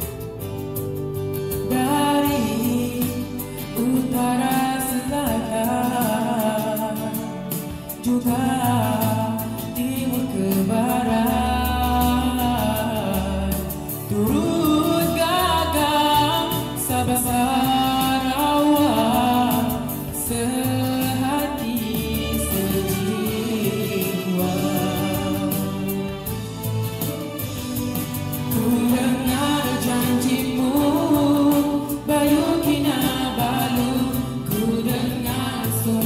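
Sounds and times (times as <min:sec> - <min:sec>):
instrumental backing track: 0:00.0 - 0:36.0
person singing: 0:01.5 - 0:36.0.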